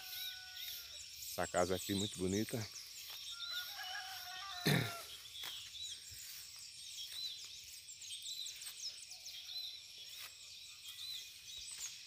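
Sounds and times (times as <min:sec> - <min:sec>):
high insect whine: 0:00.0 - 0:05.5
small birds chirping: 0:00.0 - 0:12.0.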